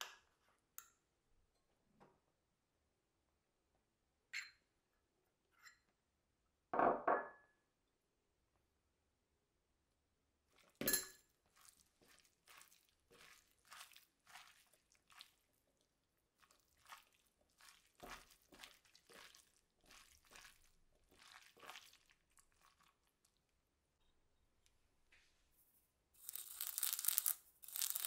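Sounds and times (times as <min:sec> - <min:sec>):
hands rustling cabbage leaves: 0:11.6 - 0:15.5.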